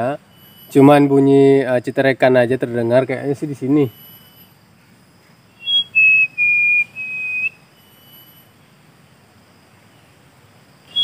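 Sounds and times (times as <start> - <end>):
man whistling: 5.6 - 8.5.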